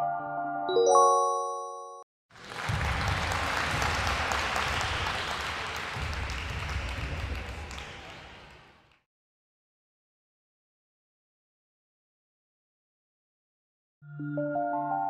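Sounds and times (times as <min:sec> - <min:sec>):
electronic chime chord: 0:00.0 - 0:02.0
recorded crowd clapping: 0:02.3 - 0:09.1.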